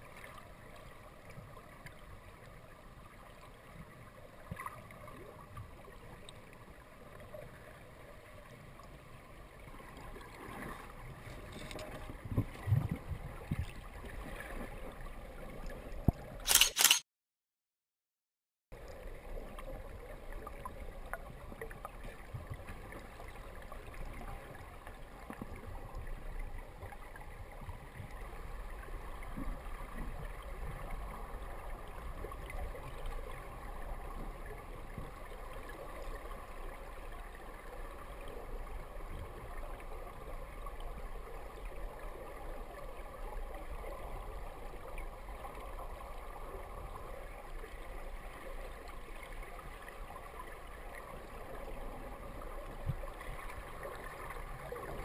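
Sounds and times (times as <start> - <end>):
muffled underwater water rush: 0.0 - 16.6, 18.8 - 55.0
faint clicks and crackles: 10.0 - 13.8.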